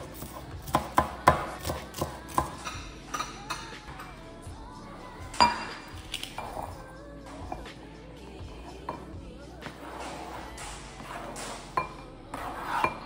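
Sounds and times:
background music: 0.0 - 13.0
utensils and dishes clinking: 0.0 - 13.0.

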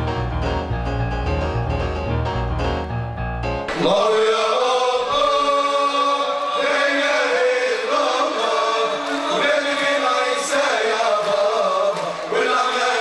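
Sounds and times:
male choir chanting: 3.7 - 13.0.

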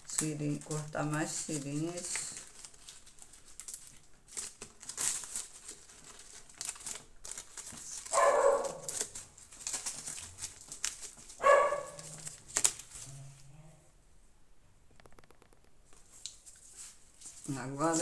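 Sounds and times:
paper crinkling and rustling: 0.0 - 13.5, 15.0 - 18.0
dog barking: 8.1 - 9.0, 11.4 - 12.1.

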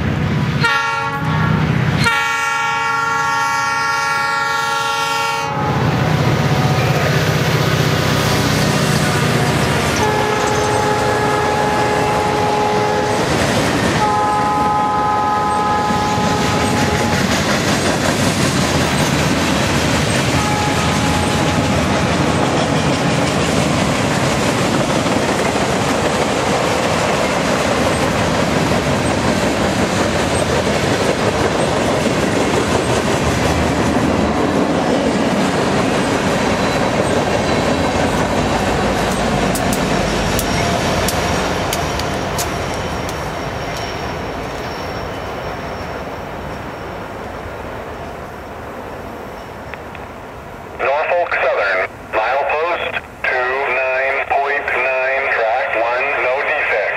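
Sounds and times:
train wheels rumbling on rails: 0.0 - 50.5
locomotive horn chord: 0.6 - 6.0, 9.1 - 13.3, 14.0 - 17.3, 20.3 - 22.0
high wheel squeal: 42.6 - 47.0.

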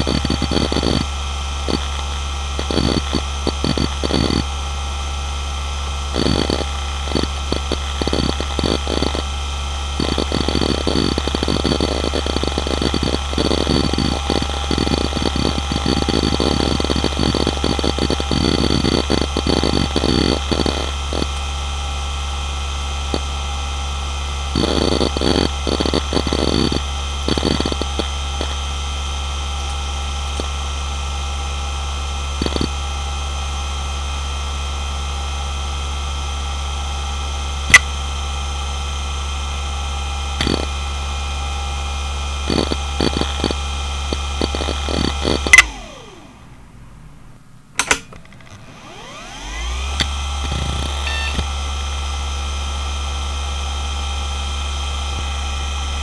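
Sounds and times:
hard drive humming and whining: 0.0 - 56.0
hard drive sharp click: 47.3 - 49.2, 49.9 - 51.5.

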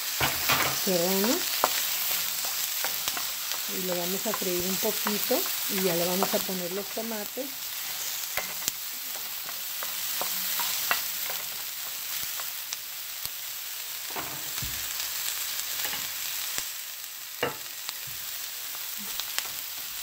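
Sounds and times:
onions sizzling in hot oil: 0.0 - 20.0.

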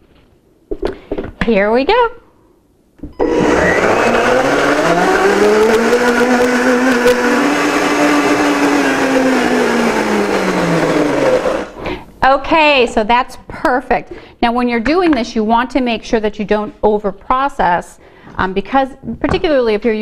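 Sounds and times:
blender motor running: 3.2 - 11.8.

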